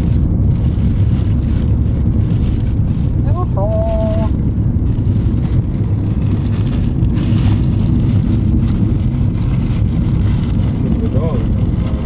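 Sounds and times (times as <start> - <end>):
road and engine rumble: 0.0 - 12.0.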